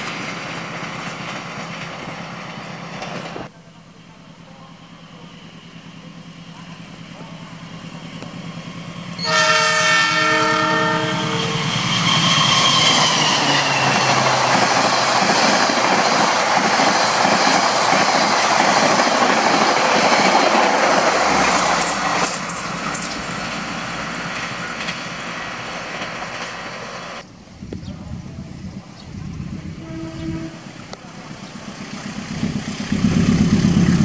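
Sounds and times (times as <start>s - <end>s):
train wheel and rail clatter: 0.0s - 3.5s, 10.2s - 28.4s
train horn: 9.1s - 13.8s, 29.7s - 30.9s.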